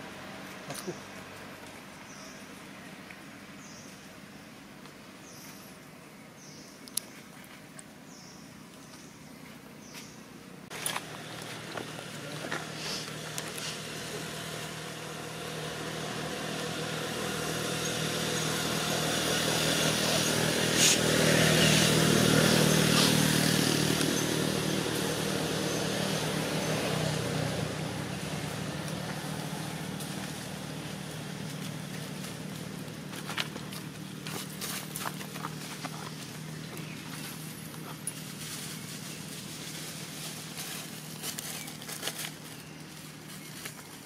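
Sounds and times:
vehicle engine passing by: 10.7s - 44.0s.

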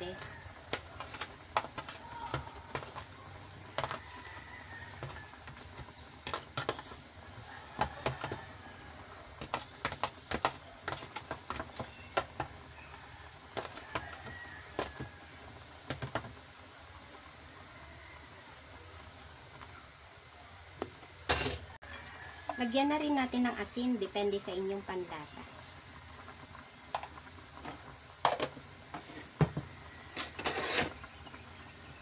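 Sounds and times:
metal ladle tapping and scraping: 30.1s - 31.0s.

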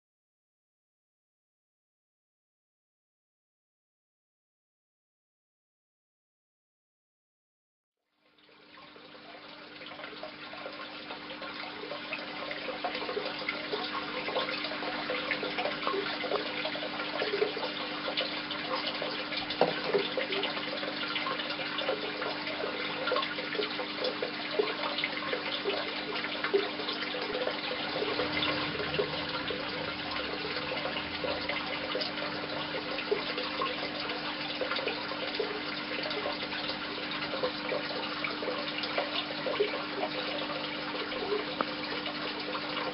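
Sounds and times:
water trickling and splashing: 8.2s - 42.9s
constant low hum: 26.5s - 36.3s.

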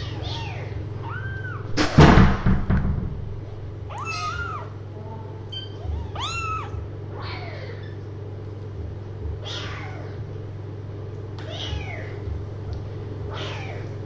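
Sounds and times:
kittens meowing: 0.0s - 1.7s, 3.9s - 4.8s, 5.5s - 8.0s, 9.4s - 10.2s, 11.4s - 12.3s, 13.2s - 14.0s.

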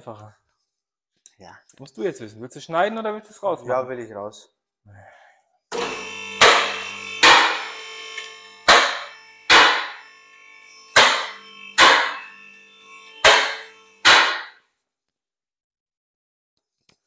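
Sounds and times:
hammer blows on metal: 5.8s - 7.8s, 8.7s - 10.0s, 11.0s - 12.2s, 13.2s - 14.5s.

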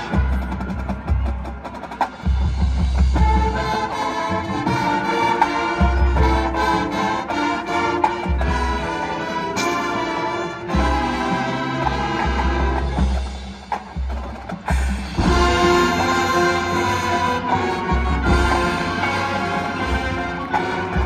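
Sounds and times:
mallet percussion: 0.0s - 21.0s
marching band playing: 0.0s - 21.0s
brass sustaining chords: 15.2s - 21.0s.

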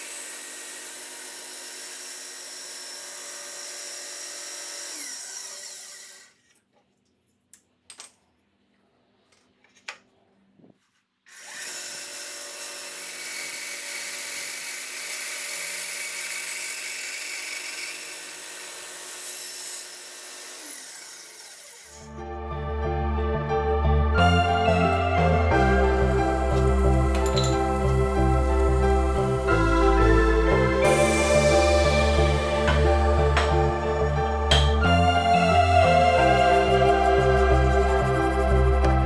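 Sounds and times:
bandsaw cutting wood: 0.0s - 6.5s, 11.3s - 22.1s.

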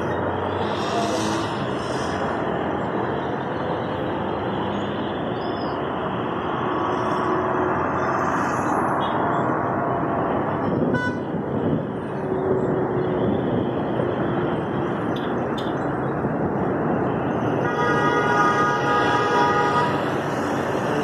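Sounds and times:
city traffic din: 0.0s - 21.0s
car horn toots: 10.9s - 11.3s, 17.6s - 20.0s.

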